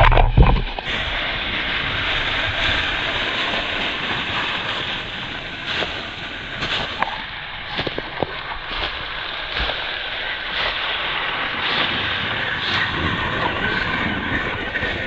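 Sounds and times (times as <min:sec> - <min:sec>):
rc car driving over dry leaves: 0:00.0 - 0:15.0.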